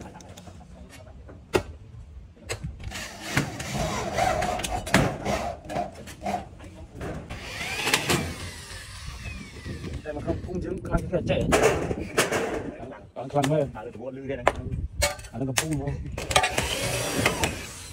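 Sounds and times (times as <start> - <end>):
drill driving screw into metal: 7.3 - 10.1, 16.2 - 17.9
electric drill whine: 7.3 - 10.2.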